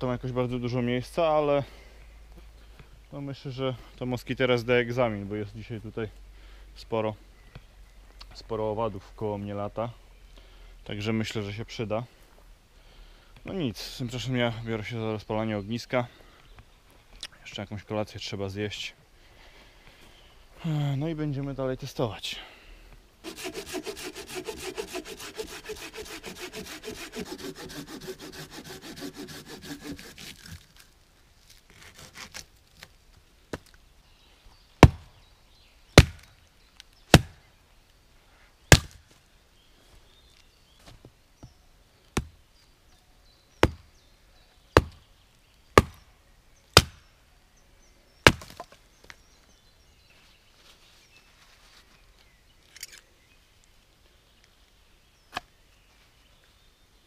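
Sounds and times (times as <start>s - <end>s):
hand saw cutting wood: 23.2s - 30.7s, 31.7s - 32.4s
axe chopping firewood: 34.8s - 35.1s, 36.0s - 36.3s, 37.1s - 37.4s, 38.7s - 39.0s, 42.2s - 42.4s, 44.8s - 45.0s, 45.8s - 46.0s, 46.8s - 47.0s, 48.2s - 48.8s.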